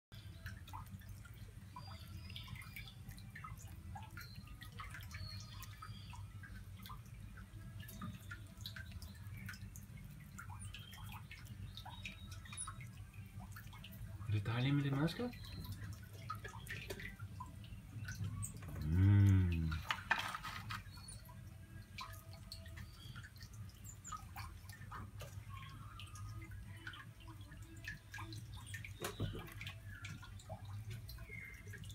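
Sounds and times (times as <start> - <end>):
low steady hum: 0.1 - 31.9
water dripping: 0.1 - 31.9.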